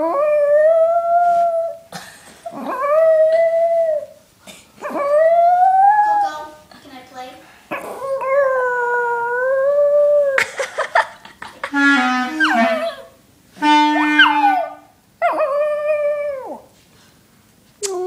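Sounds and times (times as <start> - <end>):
clarinet notes: 11.6 - 14.9.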